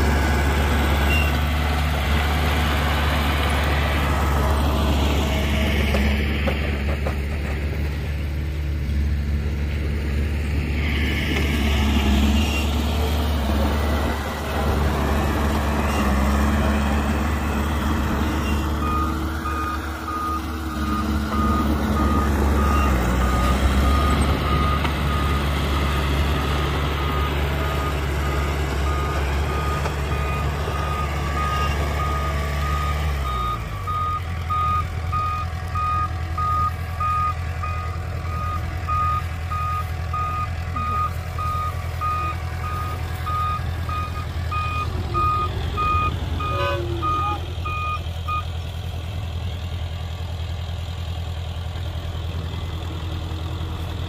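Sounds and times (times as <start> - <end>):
loud diesel engine: 0.0 - 54.0
reversing alarm beeping: 18.2 - 48.5.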